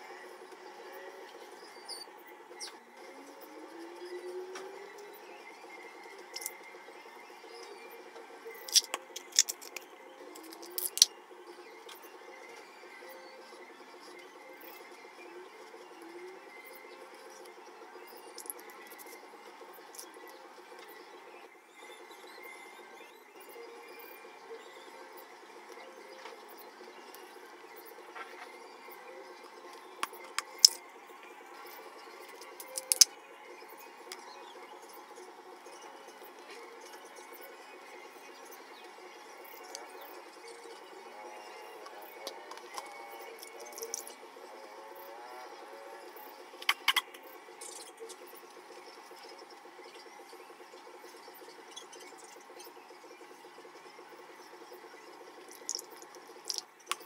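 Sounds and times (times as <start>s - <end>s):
marker cap clicks: 8.6s - 9.8s, 10.4s - 11.1s, 32.6s - 33.1s.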